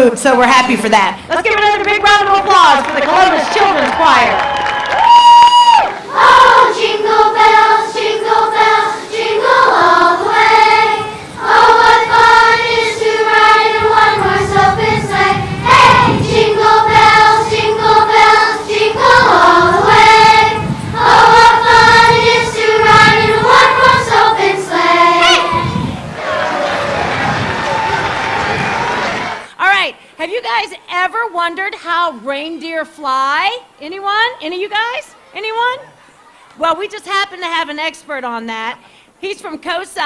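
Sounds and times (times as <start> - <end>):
children's choir singing: 6.0 - 28.2.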